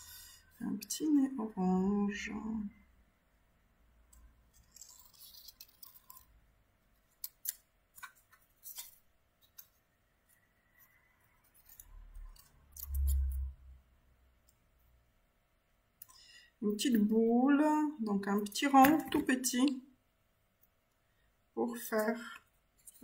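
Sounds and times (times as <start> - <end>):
scissors cutting paper: 4.6 - 6.3.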